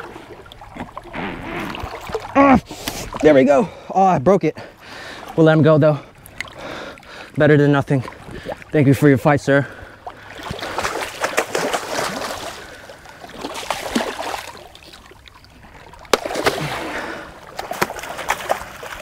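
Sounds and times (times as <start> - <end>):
stingray splashing in water: 10.2 - 19.0.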